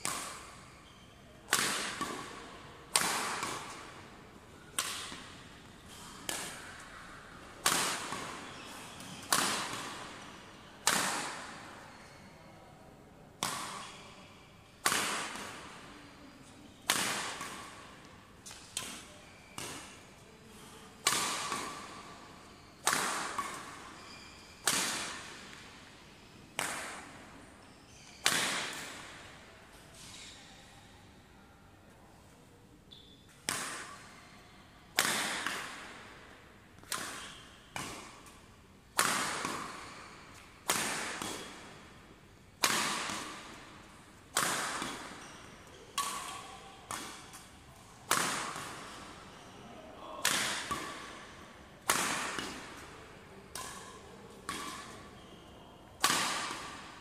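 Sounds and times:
racket smashing shuttlecock: 1.5s - 3.9s, 4.8s - 5.3s, 6.0s - 6.8s, 7.6s - 8.3s, 9.0s - 10.0s, 10.8s - 11.6s, 14.8s - 15.6s, 16.9s - 17.8s, 21.0s - 21.9s, 22.8s - 23.8s, 24.6s - 25.6s, 26.6s - 27.0s, 35.0s - 35.9s, 36.8s - 41.7s, 42.6s - 43.6s, 44.3s - 45.2s, 46.0s - 47.5s, 48.1s - 48.9s, 50.2s - 51.1s, 51.8s - 52.9s, 53.5s - 55.0s, 56.0s - 56.9s.

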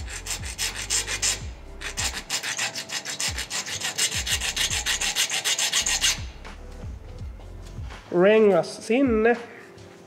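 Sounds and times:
hand file rasping on metal: 0.0s - 6.4s.

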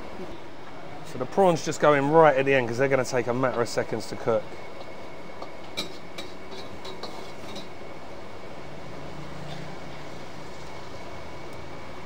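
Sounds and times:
gas burner running: 1.0s - 9.2s.

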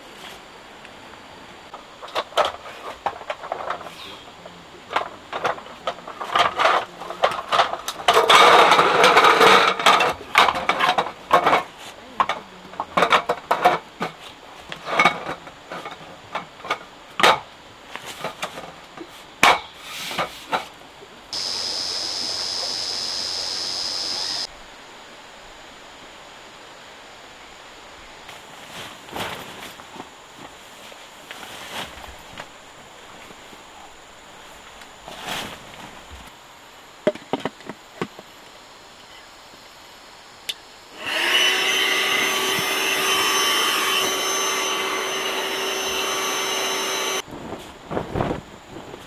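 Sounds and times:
hiss with faint whistle: 21.4s - 25.2s.

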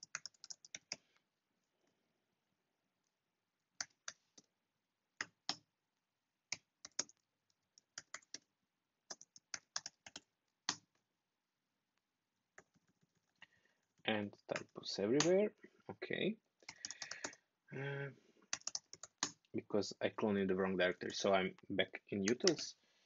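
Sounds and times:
typing on a keyboard: 0.0s - 1.0s, 6.5s - 8.5s, 9.1s - 10.9s, 12.6s - 13.4s, 16.7s - 17.4s, 18.5s - 19.4s.

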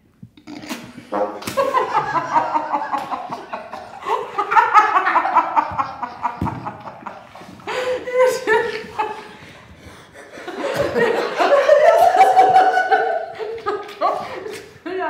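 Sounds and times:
group of people laughing: 1.0s - 14.8s
woman laughing: 1.5s - 9.4s, 10.5s - 14.6s.

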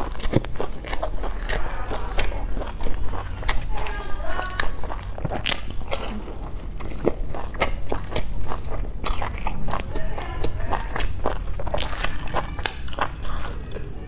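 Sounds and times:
crunchy food chewing: 0.0s - 14.0s.

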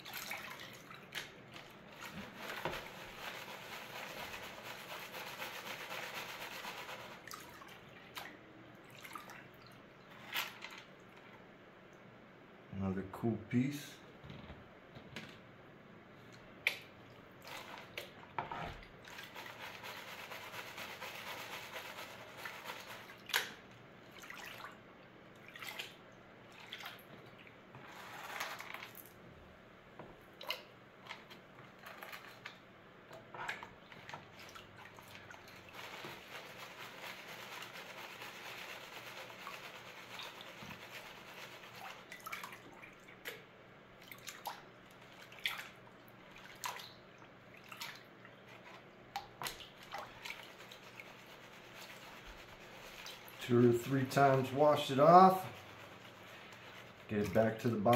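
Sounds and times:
water sloshing in a pan: 0.0s - 11.2s, 21.6s - 29.1s, 30.2s - 57.9s
water dripping: 44.0s - 48.4s.

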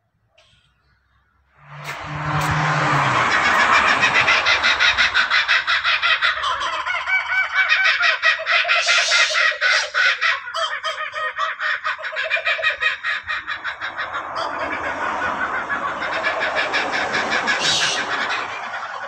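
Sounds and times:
kookaburras laughing: 2.0s - 19.0s.

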